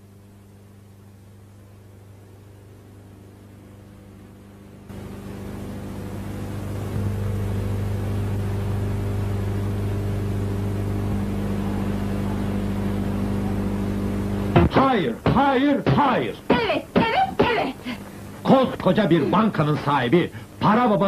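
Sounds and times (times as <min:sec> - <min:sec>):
low hum with overtones: 0:00.0 - 0:21.0.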